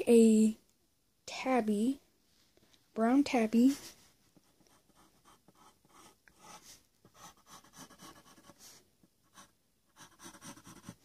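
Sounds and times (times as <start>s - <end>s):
pencil scratching on paper: 3.8s - 11.0s.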